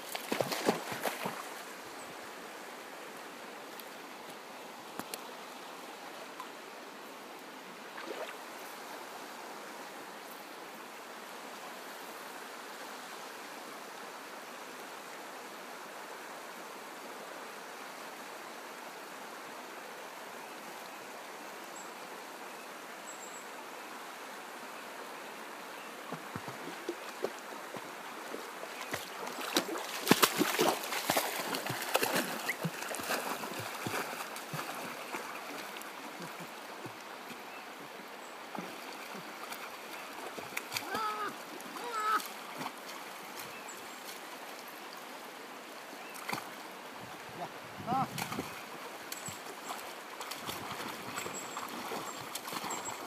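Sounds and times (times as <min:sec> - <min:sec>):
river rushing over rocks: 0:25.2 - 0:53.0.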